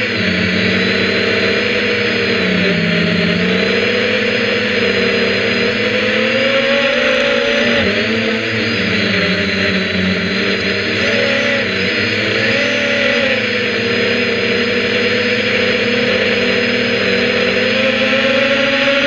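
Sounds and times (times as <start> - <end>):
drone propellers buzzing: 0.0 - 19.0.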